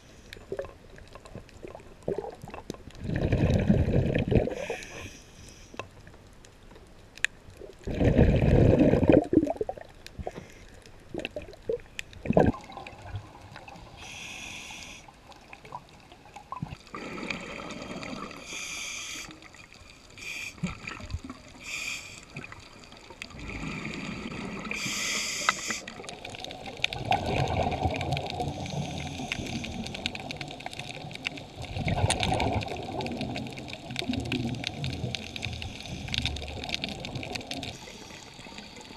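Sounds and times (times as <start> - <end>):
exhaled air bubbling underwater: 0.0 - 5.1, 7.4 - 38.9
regulator inhale hiss: 4.5 - 5.8, 10.2 - 10.8, 13.8 - 15.3, 16.9 - 20.8, 21.5 - 22.5, 23.4 - 26.1, 28.4 - 30.3, 35.0 - 36.4, 37.6 - 38.9.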